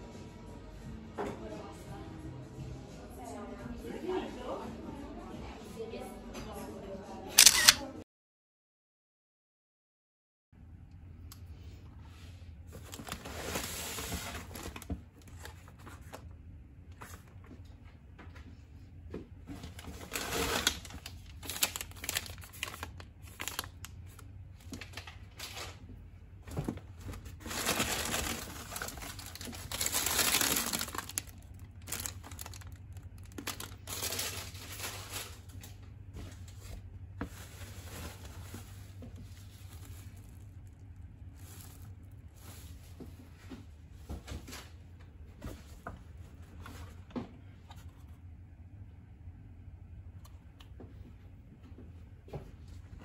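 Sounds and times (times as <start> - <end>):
grocery packaging rustling: 11.7 - 18.6, 19.4 - 44.8.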